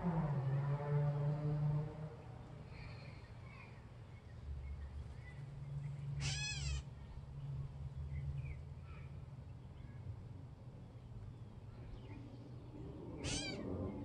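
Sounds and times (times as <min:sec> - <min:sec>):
catbird mew call: 0:06.2 - 0:06.8, 0:13.2 - 0:13.7.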